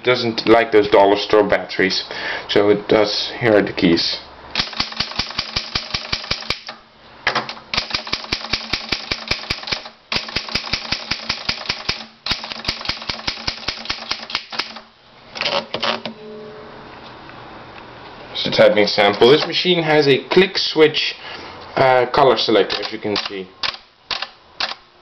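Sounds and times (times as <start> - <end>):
manual typewriter typing: 4.6 - 6.8, 7.7 - 14.8, 22.7 - 24.8.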